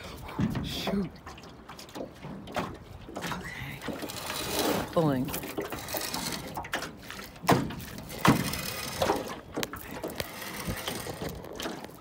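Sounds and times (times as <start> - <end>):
anchor knocking in boat: 5.4 - 12.0.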